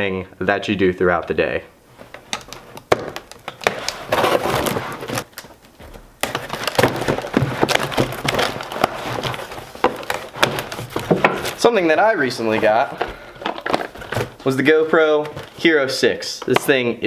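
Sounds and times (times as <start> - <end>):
cardboard and packing tape ripping: 2.8 - 14.6.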